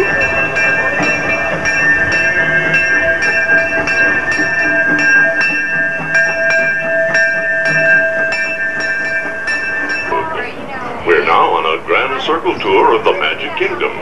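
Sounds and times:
locomotive bell ringing: 0.0 - 14.0
train running: 0.0 - 14.0.

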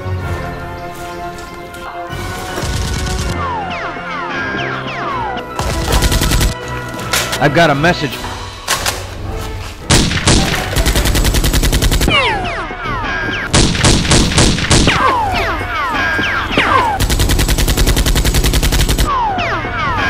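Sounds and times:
machine-gun fire bursts: 2.6 - 3.4, 9.9 - 12.2, 13.5 - 15.0, 16.6 - 19.1.

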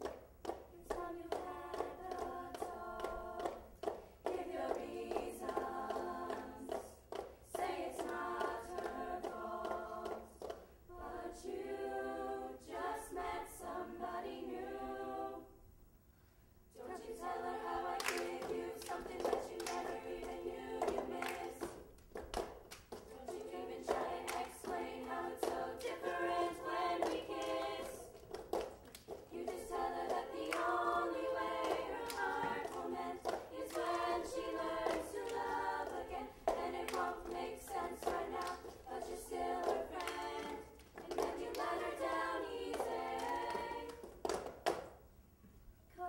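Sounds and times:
hand claps: 0.0 - 10.7, 17.9 - 45.0
children's chorus singing: 4.3 - 15.5, 16.8 - 21.9, 23.1 - 28.2, 29.2 - 44.1.

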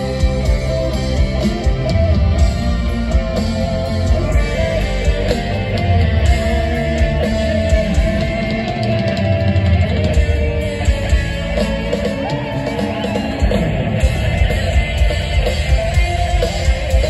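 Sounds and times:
live heavy metal band: 0.0 - 17.0.

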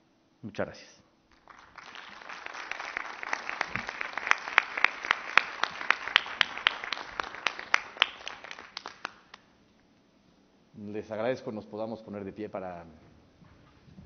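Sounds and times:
sharp individual claps: 1.3 - 9.5
small group applauding: 1.3 - 9.5.

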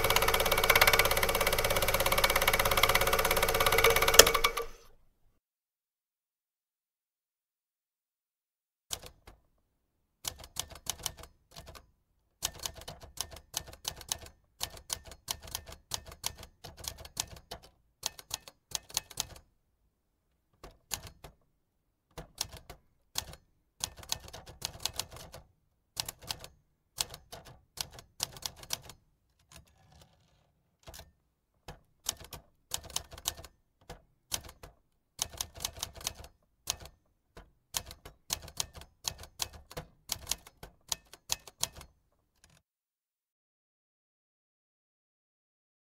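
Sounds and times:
manual typewriter typing: 0.0 - 4.9, 10.3 - 11.8, 12.4 - 19.4, 22.1 - 25.4, 26.0 - 31.1, 31.7 - 42.6.

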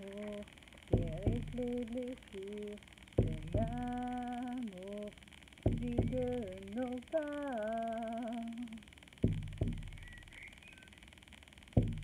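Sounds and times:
woman humming: 0.0 - 5.1, 5.7 - 8.8
frame drum beats: 1.0 - 1.7, 3.2 - 4.0, 5.7 - 6.5, 9.2 - 10.1, 11.8 - 12.0.

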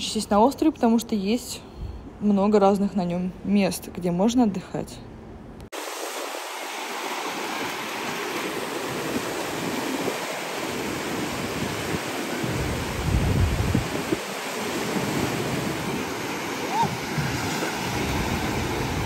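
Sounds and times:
surf breaking on beach: 5.8 - 19.0.

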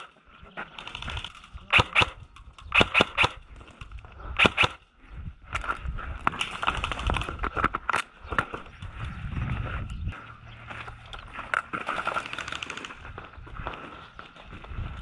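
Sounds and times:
airsoft gun shots: 1.7 - 3.4, 4.4 - 4.8
footsteps on sand: 8.9 - 12.0, 12.9 - 15.0.

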